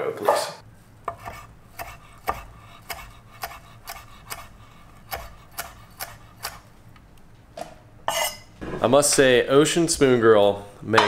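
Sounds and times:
knife chopping on wooden board: 1.1 - 6.6.

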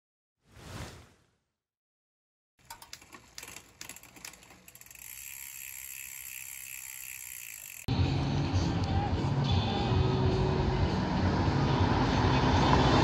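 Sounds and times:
fast whirring tick: 2.6 - 7.9
mechanical ratchet clicking: 2.6 - 7.9
outdoor street noise: 7.9 - 13.0.

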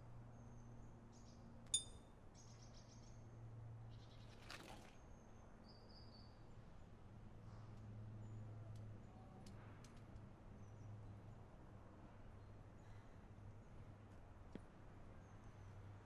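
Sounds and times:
brief rustle: 4.2 - 5.0.

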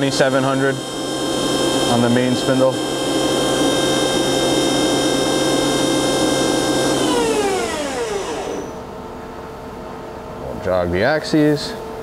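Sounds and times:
machine spindle whining: 0.0 - 8.9
quiet machine hum: 0.0 - 12.0.

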